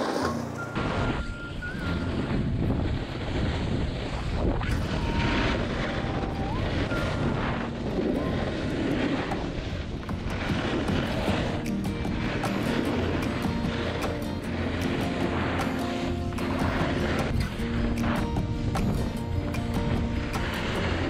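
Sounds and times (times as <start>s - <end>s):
snowboard scraping on snow: 0.0s - 21.0s
wind on microphone: 0.7s - 21.0s.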